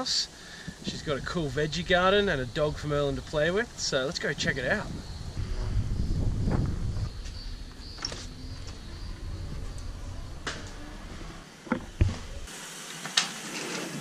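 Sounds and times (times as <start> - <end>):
wind rumble on microphone: 0.6 - 12.5
knocks and clicks: 11.6 - 12.4.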